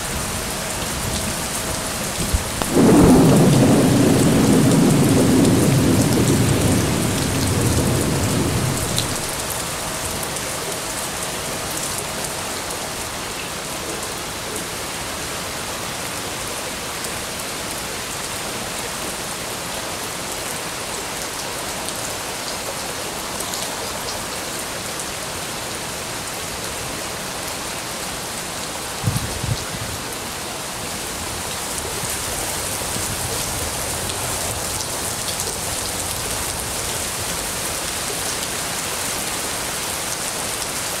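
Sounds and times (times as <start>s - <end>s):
heavy rain on leaves: 0.0s - 41.0s
low thunder rumble: 2.2s - 9.5s.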